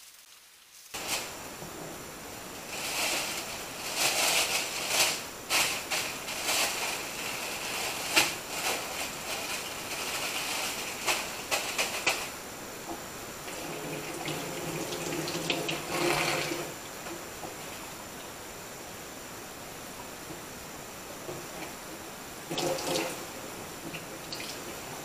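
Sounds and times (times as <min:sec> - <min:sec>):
plastic bags crinkling: 0:00.9 - 0:01.4, 0:02.5 - 0:12.4.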